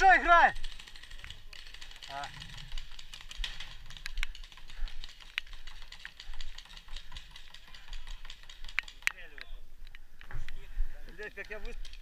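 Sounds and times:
paintball markers popping: 0:01.2 - 0:10.0.

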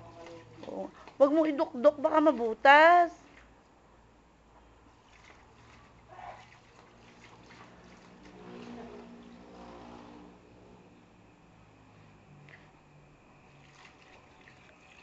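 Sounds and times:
water trickling from hose: 0:00.0 - 0:03.8, 0:04.8 - 0:10.5, 0:13.4 - 0:15.0
faint steady hum: 0:00.0 - 0:15.0.

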